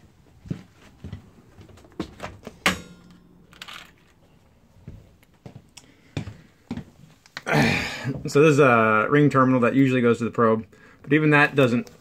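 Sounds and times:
tools clicking and knocking: 2.4s - 4.3s
sharp ringing clack: 2.5s - 4.3s.

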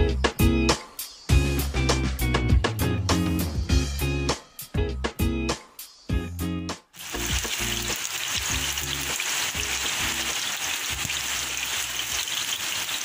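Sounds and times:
food frying in hot oil: 7.0s - 13.0s.

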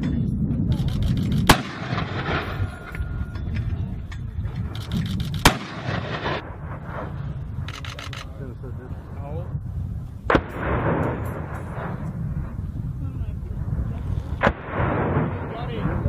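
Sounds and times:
steady low rumble: 0.0s - 16.0s
mortar firing sharp bang: 1.4s - 2.8s, 5.4s - 7.4s, 10.3s - 12.3s, 14.4s - 16.0s.

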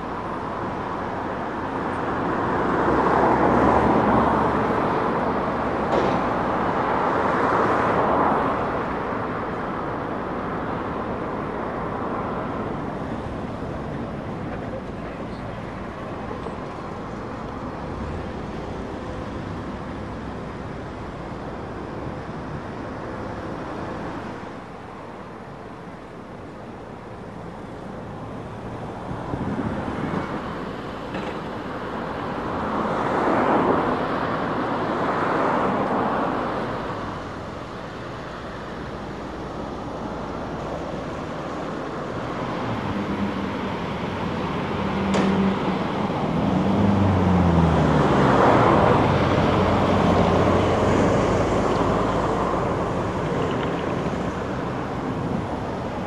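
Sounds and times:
diesel engines revving: 0.0s - 56.0s.

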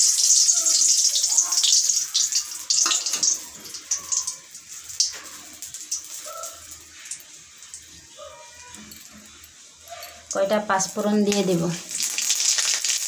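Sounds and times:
chillies sizzling in hot oil: 0.0s - 13.0s.

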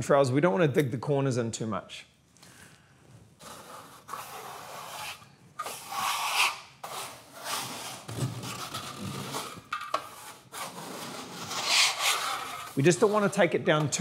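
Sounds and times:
trowel scraping plasterboard: 3.4s - 14.0s.

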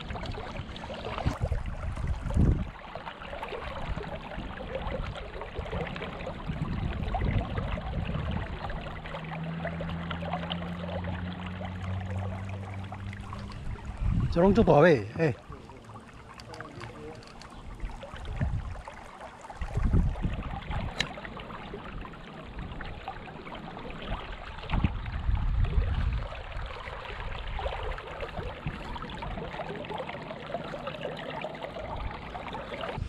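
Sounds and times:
creek water trickling: 0.0s - 33.0s
low rumbles: 6.5s - 18.9s.

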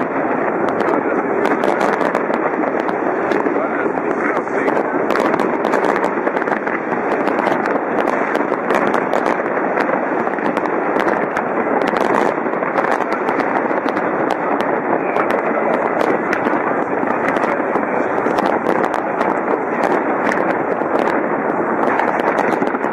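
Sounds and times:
fireworks bursting: 0.0s - 22.9s.

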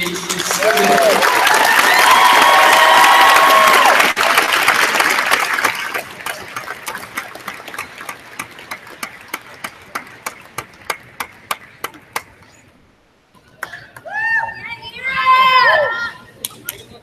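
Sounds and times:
audience applauding: 0.0s - 12.0s
single claps: 5.6s - 12.4s.

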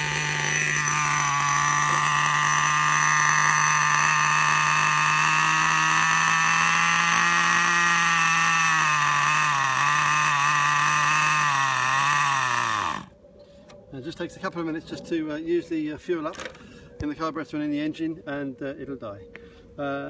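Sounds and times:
small nitro engine idling: 0.0s - 13.1s.

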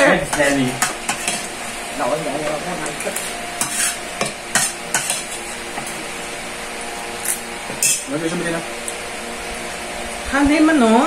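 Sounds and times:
spoon scraping ceramic plate: 0.3s - 1.5s, 3.6s - 5.9s, 7.7s - 8.1s.

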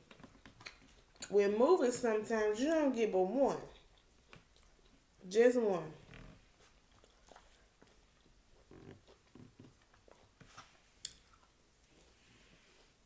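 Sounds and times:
quiet chewing: 0.0s - 1.4s, 3.6s - 5.2s, 6.1s - 13.0s.

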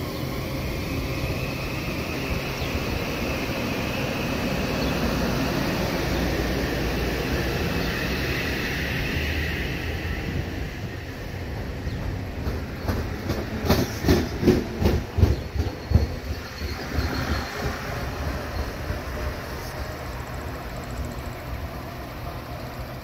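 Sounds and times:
electric train rolling past: 0.0s - 23.0s.

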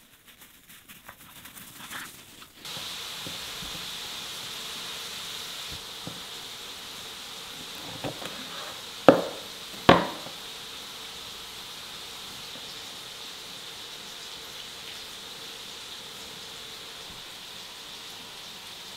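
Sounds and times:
knife knocking on cutting board: 7.8s - 10.4s.

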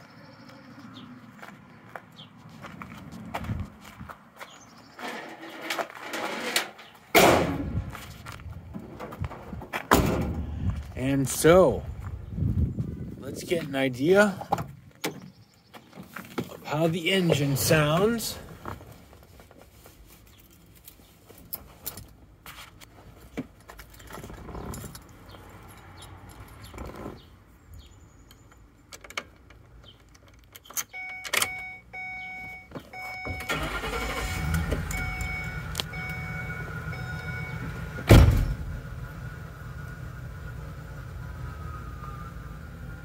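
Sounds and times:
loud thump: 7.2s - 7.9s, 9.9s - 10.6s, 38.1s - 38.7s
van engine cranking and idling: 26.2s - 43.0s
dashboard warning chime: 30.9s - 37.9s.

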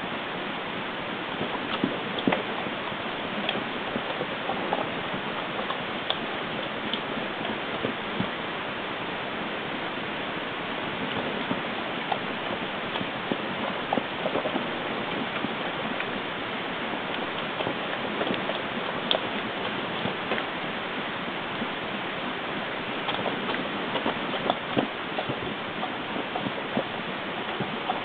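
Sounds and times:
steady hiss: 0.0s - 28.0s
small scattered ticks and clicks: 1.4s - 8.3s, 11.0s - 16.2s, 17.0s - 20.5s, 23.0s - 28.0s.

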